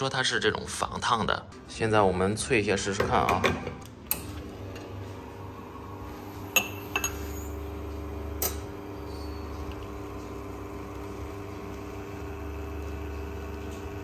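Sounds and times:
espresso machine pump hum: 4.4s - 14.0s
glass clinking: 6.6s - 7.5s.

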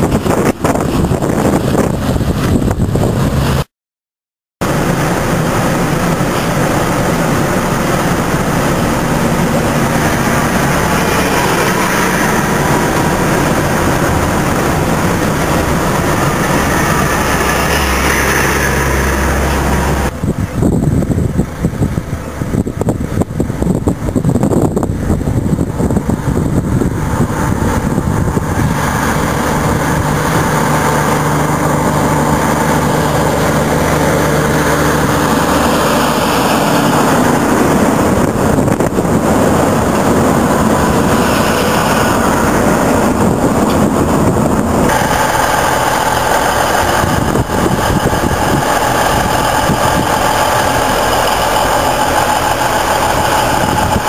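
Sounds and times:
gusting rush of passing trailers: 0.0s - 3.7s, 4.6s - 54.0s
truck diesel engine: 0.0s - 3.7s, 4.6s - 54.0s.

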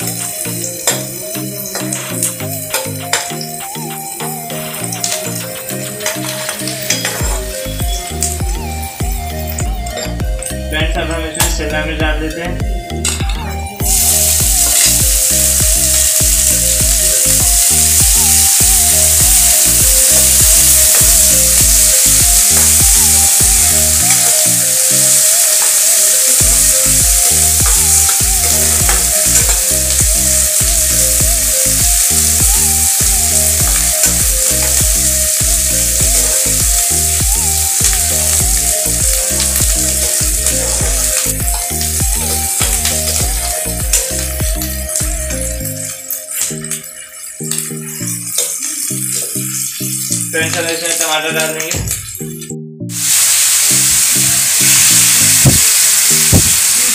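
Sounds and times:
vegetables sizzling in oil: 0.0s - 11.6s, 13.0s - 52.2s, 52.9s - 56.9s
background music with beat: 0.0s - 56.9s.

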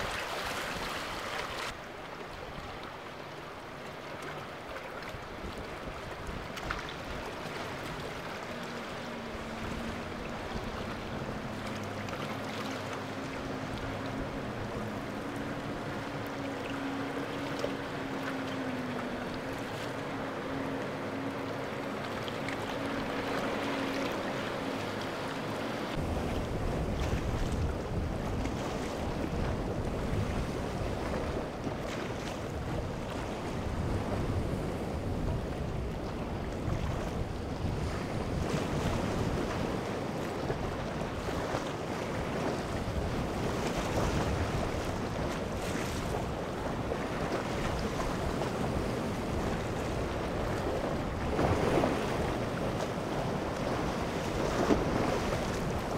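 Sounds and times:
boat engine humming: 0.0s - 55.9s
waves washing: 0.0s - 55.9s
wind buffeting microphone: 25.8s - 55.9s.

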